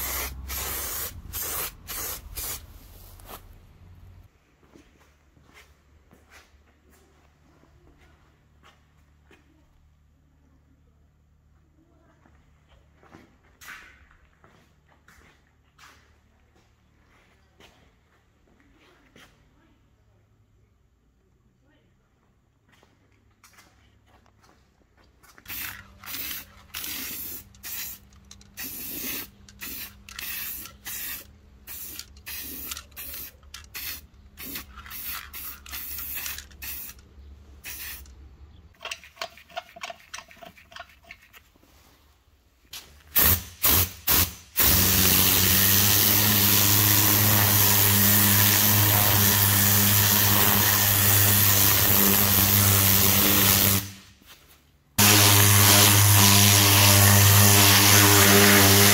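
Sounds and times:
spray paint can hissing: 0.0 - 3.4, 25.5 - 37.0, 37.6 - 38.2, 43.1 - 54.0, 55.0 - 58.9.

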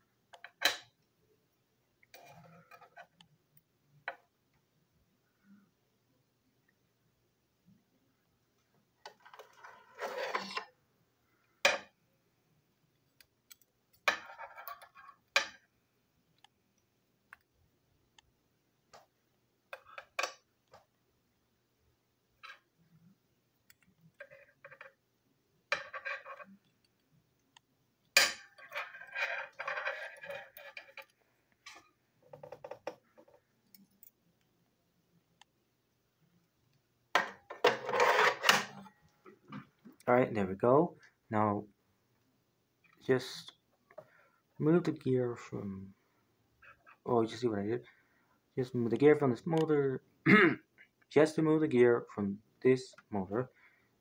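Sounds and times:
screwdriver scraping on tabletop: 2.1 - 3.2, 9.0 - 10.7, 28.5 - 31.1, 37.6 - 38.9.

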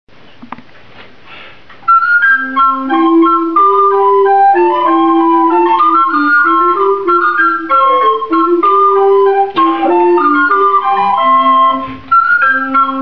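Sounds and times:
recorder ensemble playing: 1.8 - 13.0.

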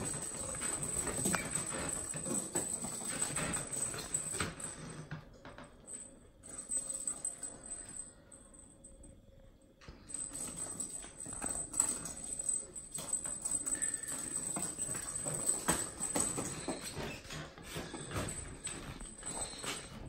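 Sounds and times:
kitten paws pattering on wood floor: 11.4 - 20.0.

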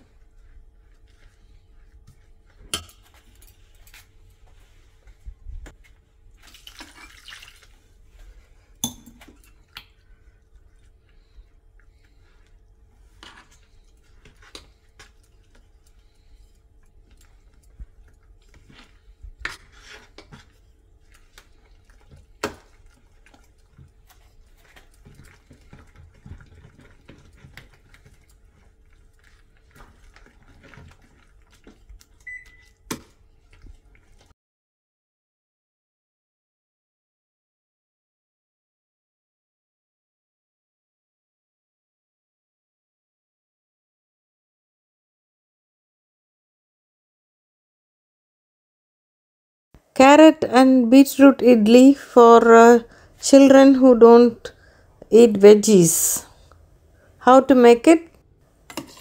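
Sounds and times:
water pouring: 6.4 - 7.9
spoon scraping in metal pot: 18.5 - 28.4, 58.7 - 59.0.

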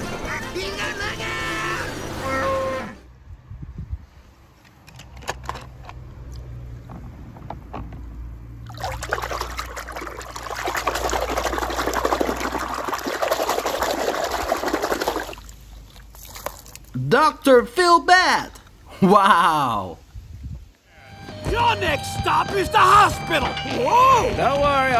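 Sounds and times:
water splashing in a plastic tub: 8.6 - 17.0.

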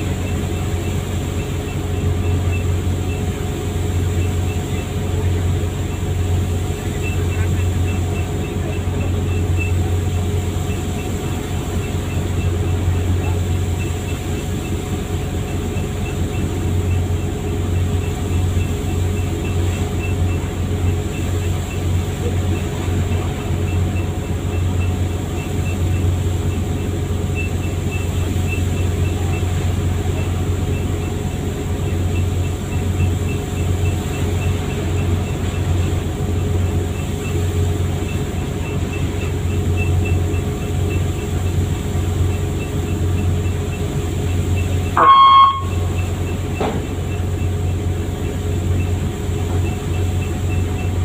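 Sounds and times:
boat engine droning: 0.0 - 51.0
brief high-pitched sound: 45.0 - 45.8.

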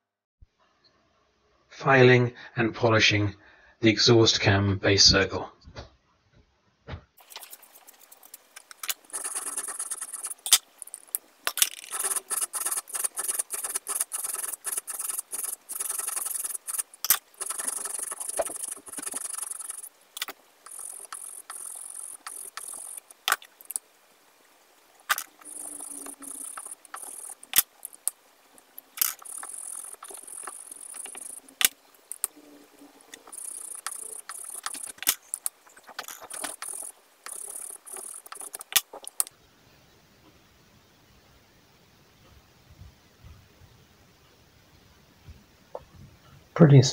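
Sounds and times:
sharp metallic clicks: 7.2 - 23.8, 25.0 - 39.3.

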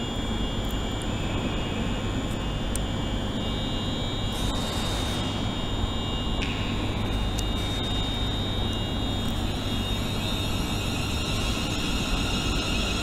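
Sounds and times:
electric train rumble and whine: 0.0 - 13.0.

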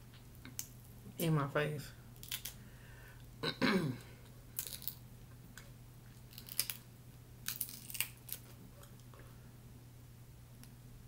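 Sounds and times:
steady low hum: 0.0 - 11.0
shrimp shell crackling and tearing: 2.2 - 2.6, 4.6 - 5.0, 6.2 - 6.8, 7.4 - 8.5.

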